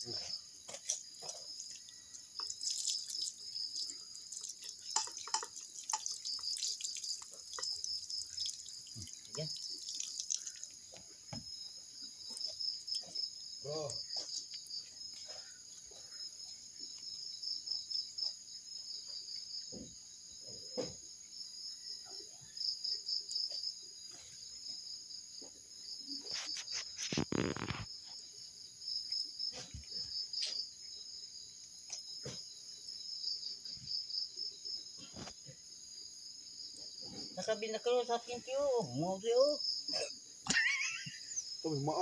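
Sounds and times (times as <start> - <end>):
crickets chirping: 0.0 - 42.0
faint knocks: 19.7 - 21.0.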